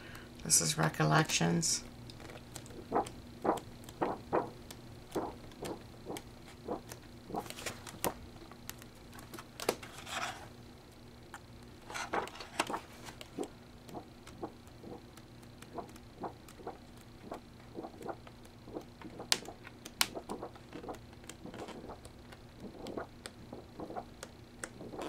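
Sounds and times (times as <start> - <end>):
paper pages turning: 6.8 - 8.2, 11.9 - 13.5.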